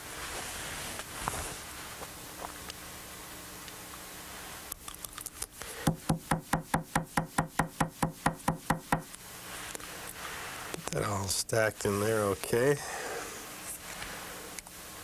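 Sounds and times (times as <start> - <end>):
hair stacker tapping on bench: 5.9 - 9.1.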